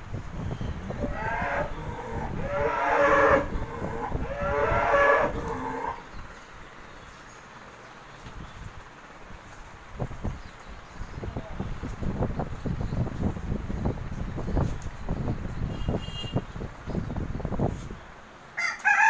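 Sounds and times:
cow mooing: 1.0s - 6.0s.

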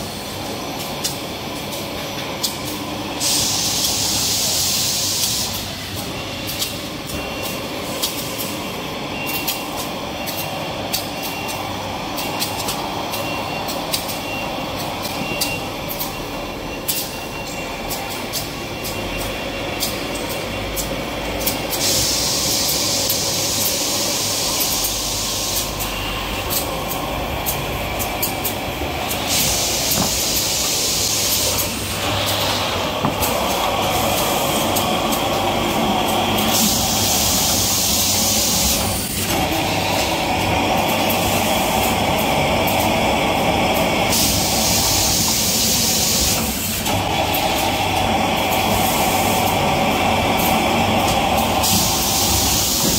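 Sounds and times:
machinery hum and clatter: 0.0s - 52.9s
loud hiss: 3.1s - 5.8s, 21.8s - 25.8s, 28.2s - 52.9s.

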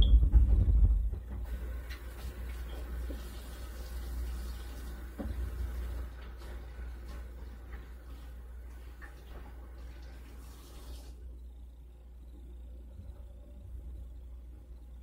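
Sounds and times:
low rumble: 0.0s - 1.4s
low hum: 0.0s - 1.8s, 11.1s - 15.0s
faint hiss: 1.4s - 12.9s.

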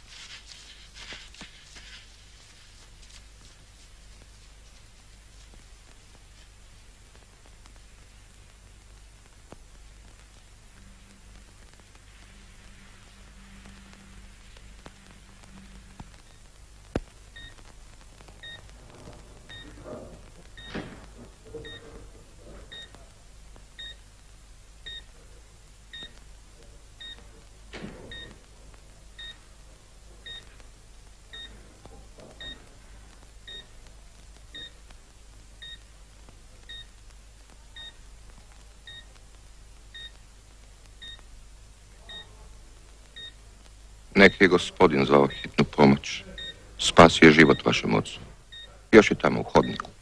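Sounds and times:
low steady hum: 0.0s - 50.0s
heart monitor beeping: 10.8s - 17.7s, 18.3s - 22.0s, 22.6s - 23.0s, 23.8s - 24.0s, 24.8s - 25.2s, 25.9s - 26.2s, 27.0s - 27.3s, 28.0s - 28.4s, 29.2s - 29.5s, 30.2s - 30.7s, 31.3s - 32.8s, 33.4s - 33.8s, 34.5s - 34.8s, 35.6s - 35.9s, 36.6s - 37.0s, 37.8s - 38.0s, 38.8s - 39.2s, 39.9s - 40.2s, 41.0s - 41.3s, 42.0s - 42.4s, 43.2s - 43.4s, 45.3s - 46.6s, 47.4s - 48.8s, 49.5s - 50.0s.

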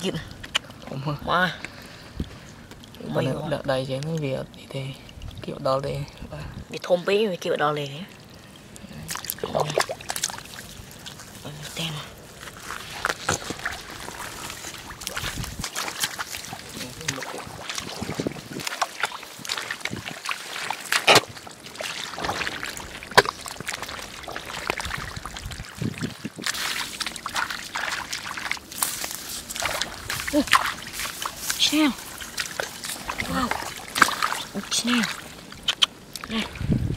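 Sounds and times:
sloshing in muddy water: 8.0s - 36.9s.

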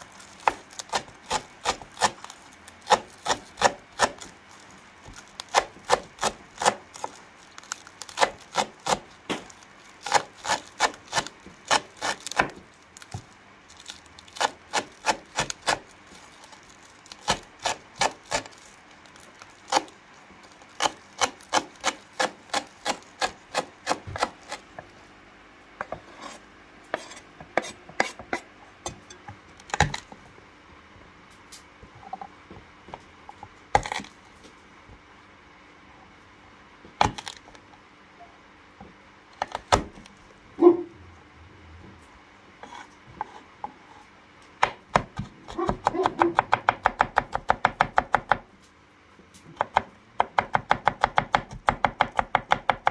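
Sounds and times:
knife chopping on wooden board: 2.9s - 4.3s, 5.0s - 7.2s, 8.1s - 13.2s, 14.4s - 15.8s, 20.8s - 24.7s, 25.8s - 28.4s, 44.6s - 48.4s, 49.6s - 52.9s.

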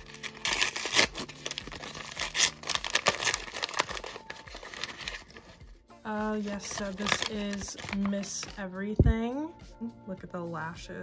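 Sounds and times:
plastic wrapping crinkling and ripping: 0.0s - 5.6s, 6.3s - 8.5s.

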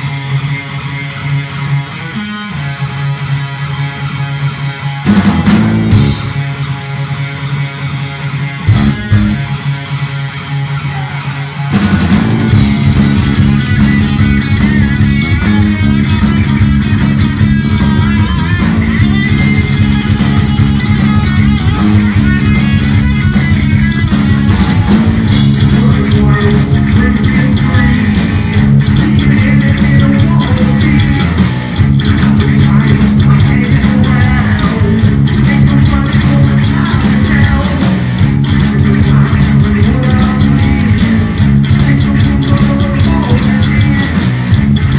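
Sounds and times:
distorted electric guitar: 0.0s - 44.9s
heavy metal band playing: 0.0s - 44.9s.

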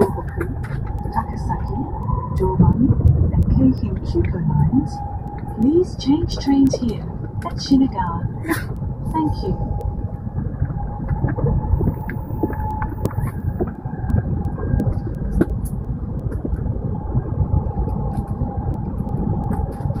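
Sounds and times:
faint steady whine: 0.0s - 20.0s
train cabin rumble: 0.0s - 20.0s.

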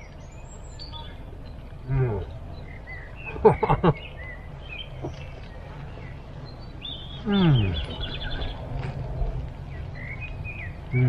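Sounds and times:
songbirds chirping: 0.0s - 11.0s
man humming while chewing: 7.2s - 7.9s.

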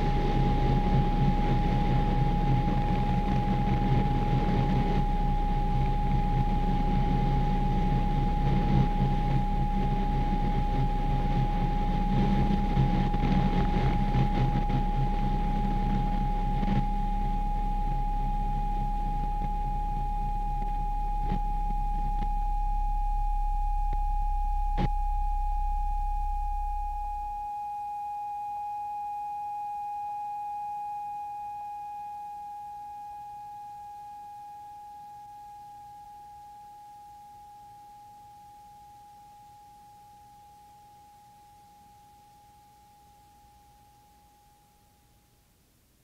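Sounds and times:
deep rumble: 0.0s - 27.5s
electronic drone tone: 0.0s - 37.8s.

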